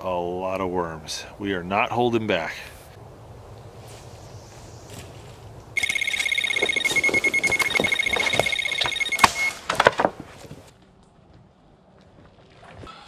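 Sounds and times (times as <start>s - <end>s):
bite alarm high beeps: 5.8s - 9.6s
knocks and clicks: 5.8s - 10.2s.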